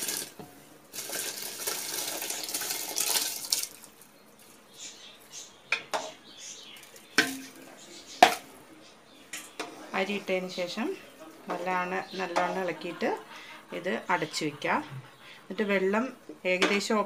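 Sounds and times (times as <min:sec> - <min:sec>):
rice pouring into boiling water: 0:00.0 - 0:05.0
ladle stirring: 0:00.0 - 0:15.2
ladle knocking against metal pot: 0:05.7 - 0:06.2.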